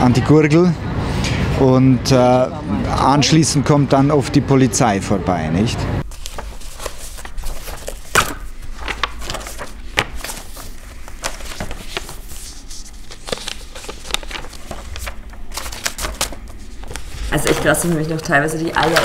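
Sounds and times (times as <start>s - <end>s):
paper pages turning: 6.0s - 19.0s.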